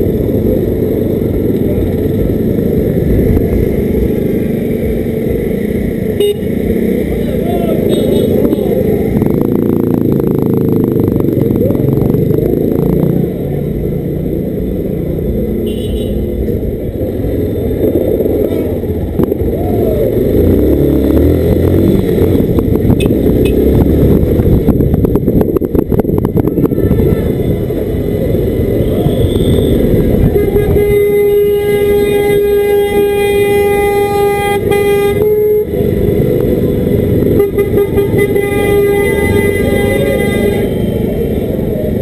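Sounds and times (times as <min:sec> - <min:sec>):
rumbling microphone noise: 0:00.0 - 0:06.2, 0:06.9 - 0:15.6, 0:16.4 - 0:40.3
motorcycle engine running: 0:00.0 - 0:16.0.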